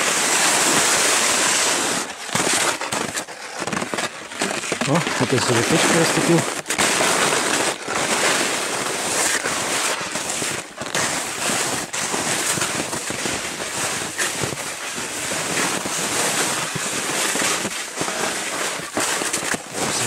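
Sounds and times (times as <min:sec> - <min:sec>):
footsteps crunching on snow: 0:00.2 - 0:20.0.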